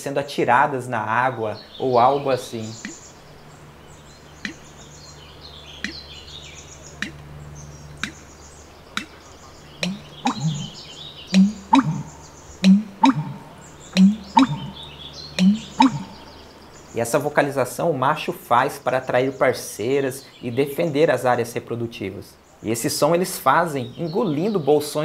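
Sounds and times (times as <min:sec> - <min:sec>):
faint high twittering: 0:01.5 - 0:17.3
sharp clicks: 0:04.4 - 0:04.6, 0:05.8 - 0:06.0, 0:08.0 - 0:08.2, 0:09.8 - 0:10.7, 0:12.6 - 0:14.7
bittern booming call: 0:09.8 - 0:16.4.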